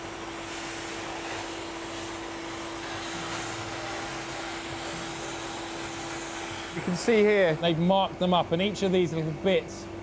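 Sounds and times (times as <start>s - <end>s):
cutting torch hissing: 0.0s - 7.8s.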